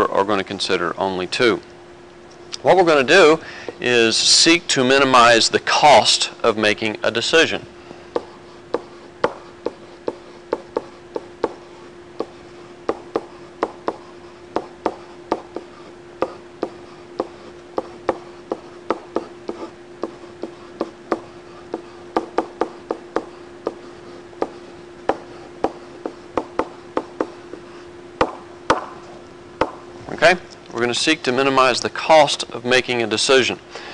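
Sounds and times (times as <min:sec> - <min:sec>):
steady hum: 0:00.0 - 0:33.9
stylus tapping on tablet: 0:08.1 - 0:11.6, 0:12.2 - 0:27.6, 0:28.2 - 0:28.9, 0:29.6 - 0:29.8.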